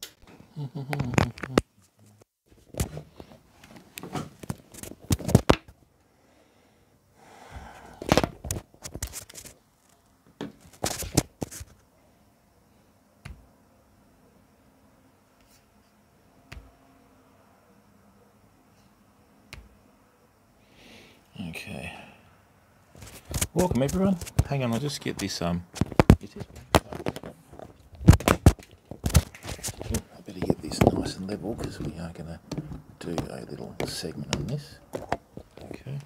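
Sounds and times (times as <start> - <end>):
objects clicking and knocking: 23.0 - 35.8.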